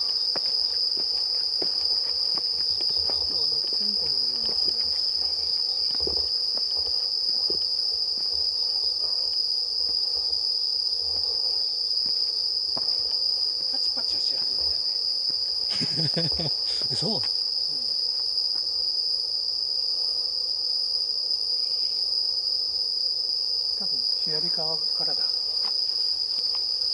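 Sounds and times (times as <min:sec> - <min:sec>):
insects trilling: 0:00.0 - 0:26.9.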